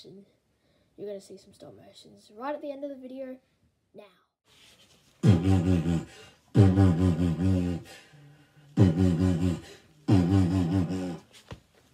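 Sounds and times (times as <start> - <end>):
low wavering growl: 5.2 - 11.3.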